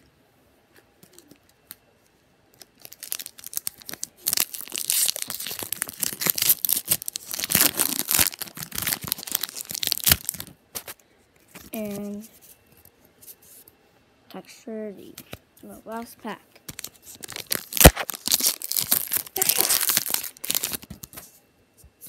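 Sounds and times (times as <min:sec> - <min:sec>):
foil wrapper tearing and crinkling: 0:02.6 - 0:11.0, 0:16.7 - 0:21.2.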